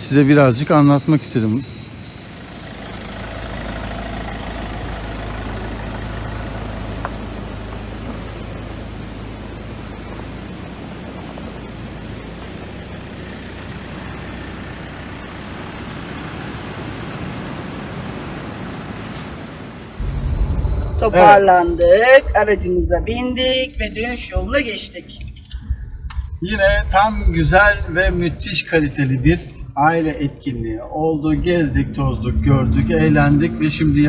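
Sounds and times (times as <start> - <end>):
high-pitched insect chorus: 0.0 - 34.0
low rumble: 20.0 - 34.0.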